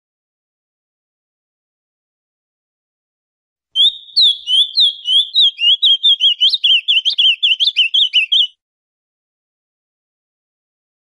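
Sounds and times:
bird singing whistled notes: 3.8s - 8.6s.

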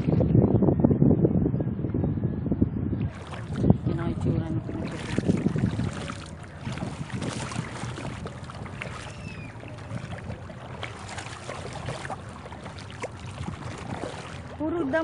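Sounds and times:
wind on microphone: 0.0s - 15.0s
water lapping against a boat: 3.0s - 15.0s.

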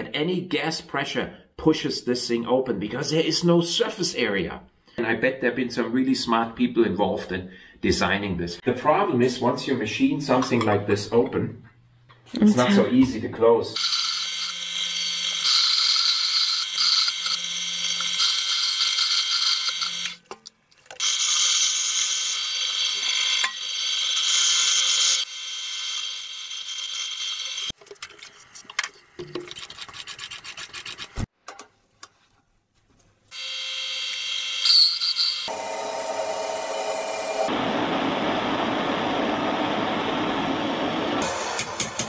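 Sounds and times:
power tool machining metal: 13.8s - 20.2s, 21.0s - 27.7s, 33.4s - 37.5s.

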